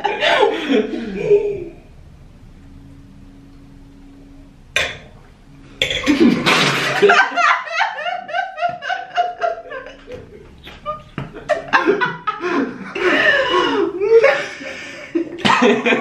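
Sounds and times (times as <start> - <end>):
man laughing: 0.0 - 1.8, 7.0 - 16.0
woman laughing: 0.0 - 1.8, 6.1 - 16.0.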